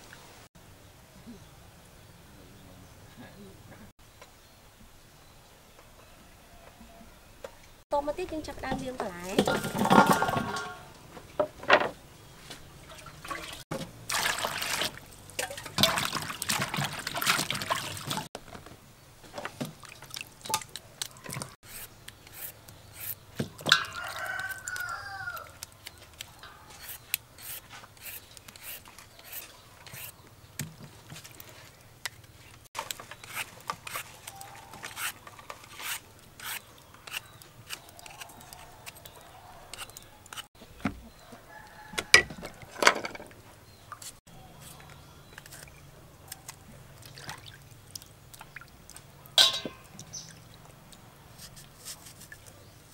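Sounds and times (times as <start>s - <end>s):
vegetables splashing in water: 12.9s - 18.3s
water dripping: 19.6s - 22.2s, 46.4s - 51.1s
peeler scraping fruit: 21.6s - 23.2s, 26.6s - 30.2s, 32.8s - 39.0s, 39.7s - 40.5s
rooster crowing: 23.8s - 25.6s, 38.1s - 39.8s, 41.2s - 42.8s.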